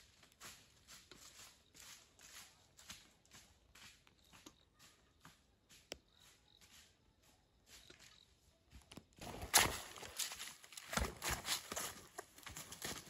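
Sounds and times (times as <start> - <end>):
footsteps on dry leaves: 0.0 - 4.1, 9.2 - 13.0.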